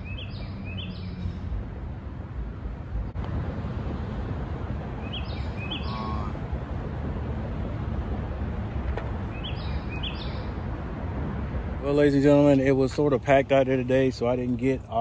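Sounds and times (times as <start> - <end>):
bird rising chirps: 0.0 - 1.5, 5.0 - 6.4, 9.3 - 10.6
outdoor background rumble: 0.0 - 15.0.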